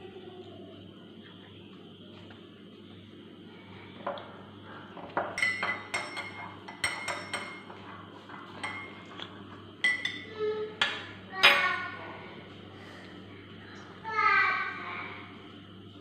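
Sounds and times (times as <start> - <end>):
spoon clinking in glass mug: 5.3 - 7.7, 8.6 - 9.0, 9.8 - 10.2.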